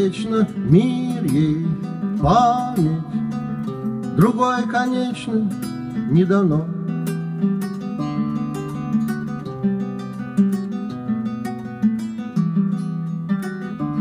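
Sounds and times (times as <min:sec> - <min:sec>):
classical guitar chords: 0:00.0 - 0:14.0.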